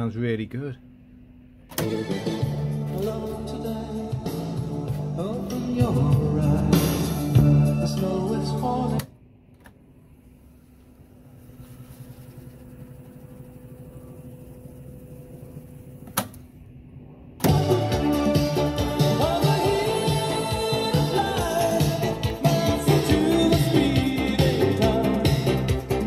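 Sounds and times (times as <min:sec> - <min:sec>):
music from tape deck: 0:01.7 - 0:16.3, 0:17.4 - 0:26.0
reels fast-winding hum: 0:10.5 - 0:15.8.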